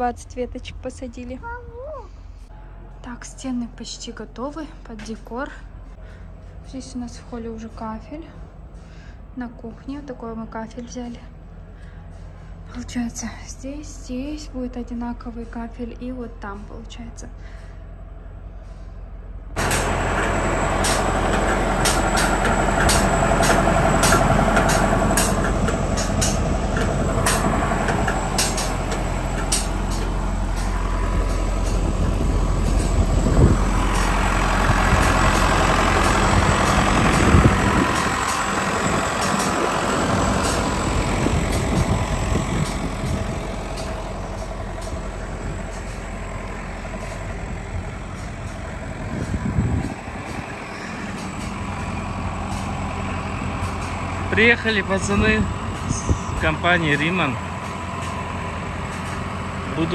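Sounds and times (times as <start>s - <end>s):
diesel engine idling: 17.2s - 59.9s.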